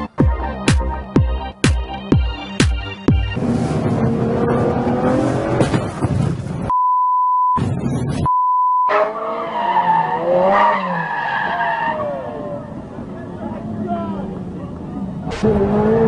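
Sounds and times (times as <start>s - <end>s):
car engine accelerating: 3.4s - 6.7s, 11.9s - 16.0s
road noise inside car: 3.4s - 6.7s
censor beeps: 6.7s - 9.0s.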